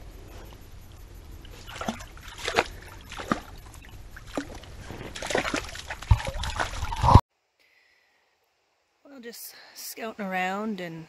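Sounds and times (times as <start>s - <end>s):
rustling: 0.0s - 7.2s.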